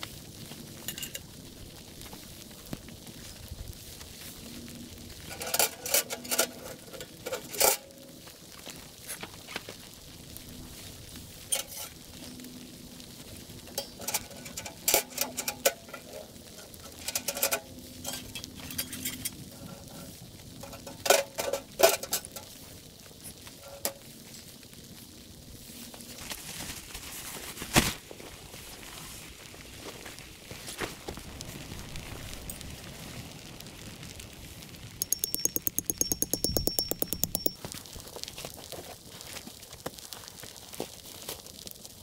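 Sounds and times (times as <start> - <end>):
metal clinks and clanks: 35.0 - 37.6.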